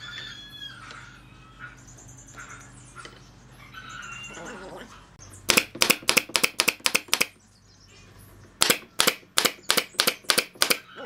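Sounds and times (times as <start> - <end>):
nail gun firing: 5.5 - 7.3, 8.6 - 10.9.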